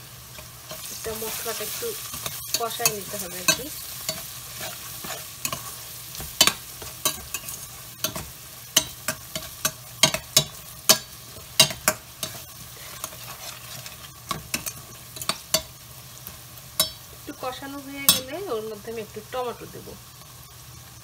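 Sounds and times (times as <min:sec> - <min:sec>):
food sizzling in a pot: 0:00.0 - 0:21.0
spatula scraping a pot: 0:00.7 - 0:15.7.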